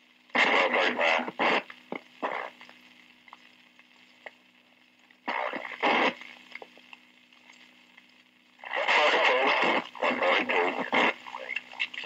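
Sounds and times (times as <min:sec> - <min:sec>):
radio channel hum and hiss: 0:00.0 - 0:12.0
garbled radio transmission bursts: 0:00.3 - 0:02.7, 0:05.2 - 0:06.5, 0:08.6 - 0:12.0.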